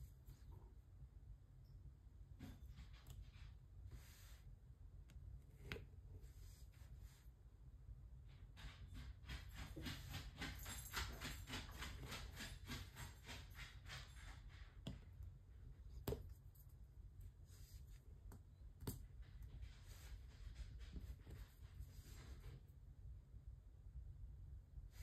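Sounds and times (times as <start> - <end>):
faint steady hum: 0.0 - 9.4.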